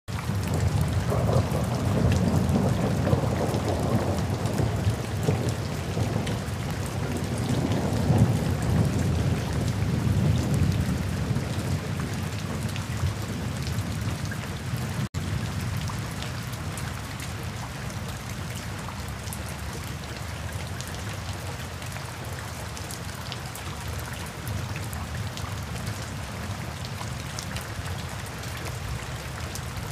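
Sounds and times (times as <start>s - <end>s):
steady rain falling: 0.1s - 29.9s
low rolling thunder rumble: 0.2s - 16.7s.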